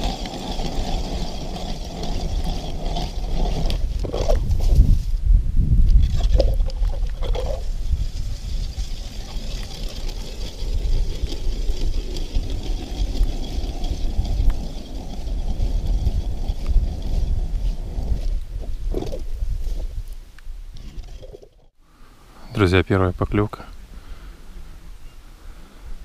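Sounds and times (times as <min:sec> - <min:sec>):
hand ice auger grinding: 0:00.0 - 0:05.1, 0:05.9 - 0:19.8, 0:20.8 - 0:21.7
wind buffeting microphone: 0:00.0 - 0:21.2.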